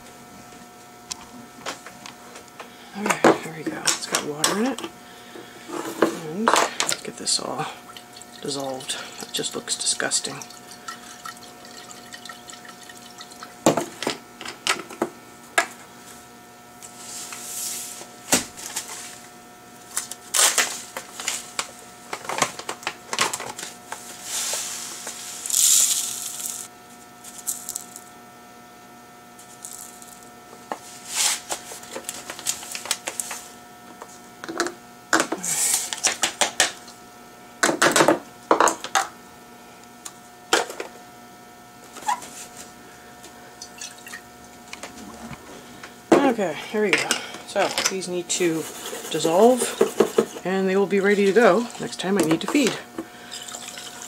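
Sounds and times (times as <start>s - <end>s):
salt granules poured into cup: 25.4s - 26.7s
glass jar and containers clinking: 53.3s - 54.0s.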